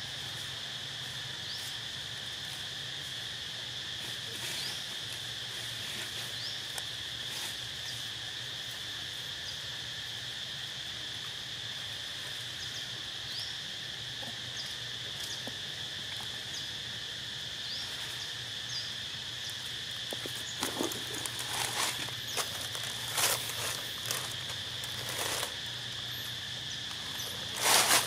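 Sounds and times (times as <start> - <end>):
insects droning: 0.0 - 28.0.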